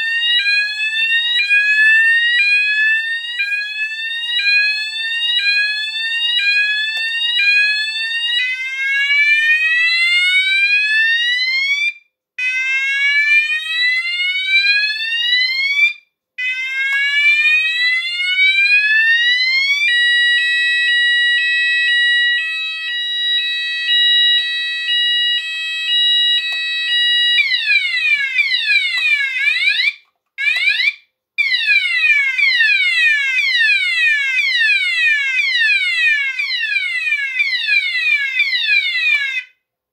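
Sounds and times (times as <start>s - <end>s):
electronic fire alarm tones: 16.5s - 29.9s.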